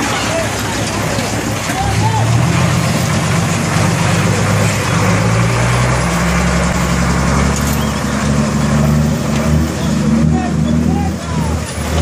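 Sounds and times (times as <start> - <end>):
churning water rushing: 0.0 - 12.0
heavy truck engine running: 0.0 - 12.0.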